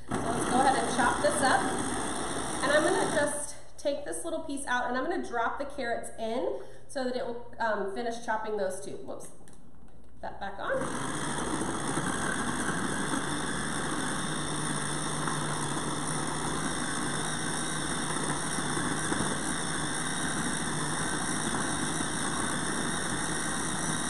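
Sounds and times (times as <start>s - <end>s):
food processor chopping vegetables: 0.0s - 3.4s, 10.7s - 24.0s.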